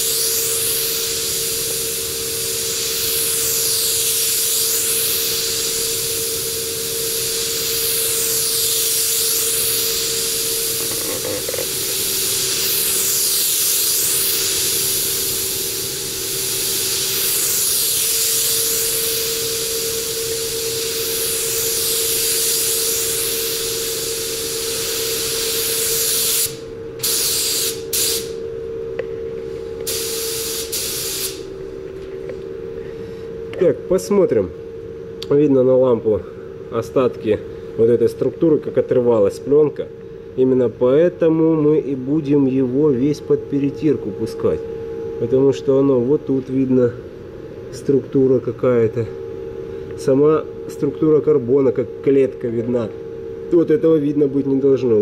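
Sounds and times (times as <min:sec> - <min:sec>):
spray gun hissing: 0:00.0 - 0:28.4, 0:29.9 - 0:31.5
steady hum: 0:00.0 - 0:55.0.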